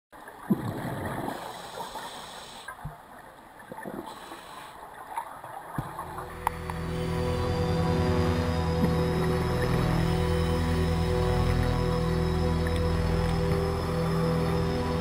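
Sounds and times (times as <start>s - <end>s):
water gurgles: 0.2s - 6.9s
soundtrack music: 5.9s - 15.0s.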